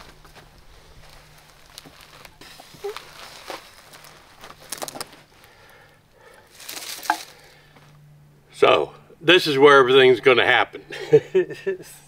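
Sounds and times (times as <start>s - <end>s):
rustling on grass: 0.0s - 5.8s, 6.5s - 7.6s.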